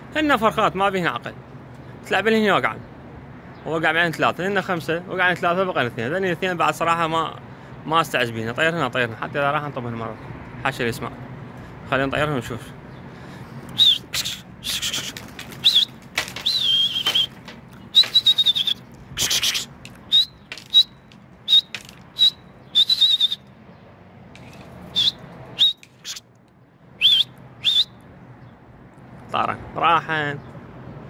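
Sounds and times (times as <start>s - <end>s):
sharp high whistles: 13.8s - 23.5s, 24.9s - 26.2s, 27.0s - 28.0s
pigeon wing flaps: 14.7s - 19.6s.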